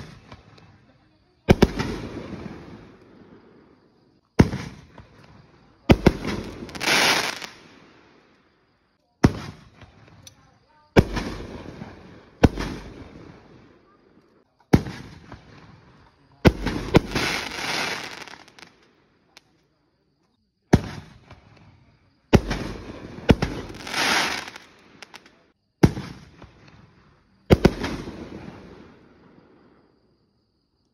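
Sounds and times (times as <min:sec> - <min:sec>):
firework booms: 0:00.0 - 0:00.8, 0:01.4 - 0:03.8, 0:04.4 - 0:08.2, 0:09.2 - 0:10.2, 0:10.9 - 0:14.1, 0:14.7 - 0:18.8, 0:20.7 - 0:29.9
firework hiss: 0:06.0 - 0:08.1, 0:16.5 - 0:18.8, 0:22.4 - 0:26.3.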